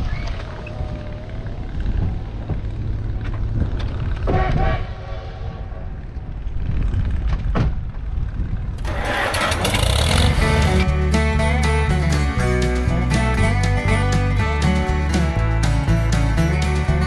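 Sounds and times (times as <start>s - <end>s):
wind rumble on microphone: 0.0s - 9.0s
acoustic guitar music: 8.8s - 17.0s.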